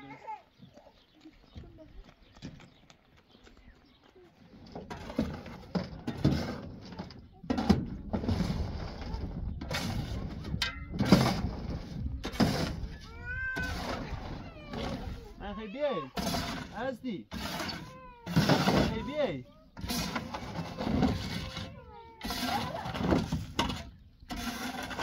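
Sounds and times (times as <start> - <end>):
shovel scraping gravel in metal bed: 4.6 - 13.0, 13.6 - 15.1, 16.1 - 25.0.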